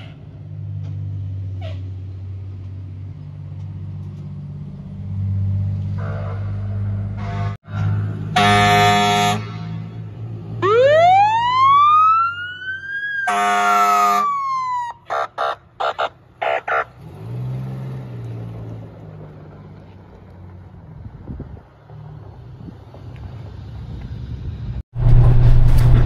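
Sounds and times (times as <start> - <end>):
fire truck horn blasts: 6.0 - 10.1, 13.2 - 14.4
siren wail: 10.6 - 17.0.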